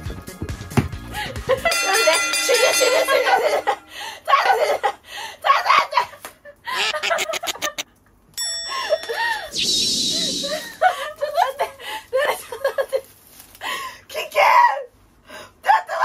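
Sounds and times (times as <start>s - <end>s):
music: 0.0s - 1.8s
women laughing: 1.2s - 7.8s, 10.6s - 13.0s.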